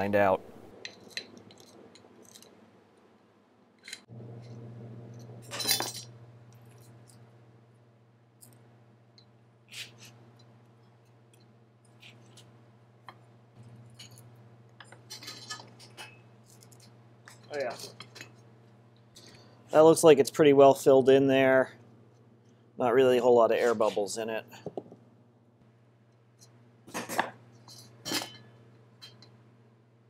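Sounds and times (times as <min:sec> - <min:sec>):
low steady hum: 0:00.0 - 0:30.0
metal parts clinking and scraping: 0:05.4 - 0:06.1, 0:15.0 - 0:18.3.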